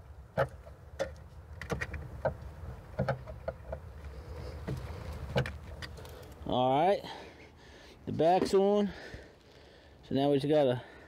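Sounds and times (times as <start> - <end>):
sharp clicks and small knocks: 0.3 - 3.9.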